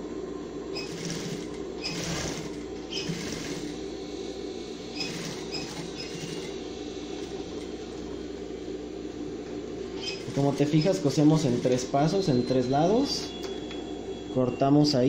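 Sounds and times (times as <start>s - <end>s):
sewing machine running: 0.7s - 3.9s, 4.9s - 7.6s, 10.0s - 12.0s.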